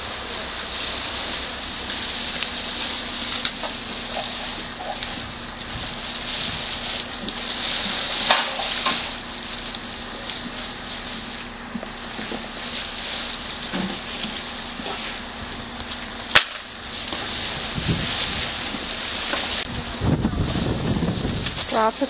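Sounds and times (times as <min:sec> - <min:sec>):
plastic bags crackling: 0:00.0 - 0:22.0
wind on microphone: 0:17.4 - 0:18.8, 0:19.6 - 0:21.7.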